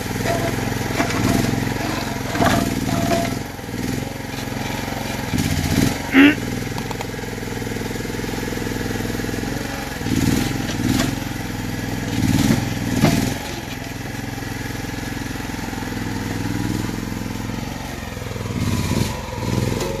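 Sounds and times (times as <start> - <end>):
excavator engine running: 0.0 - 20.0
bucket scraping and knocking concrete: 0.2 - 3.5.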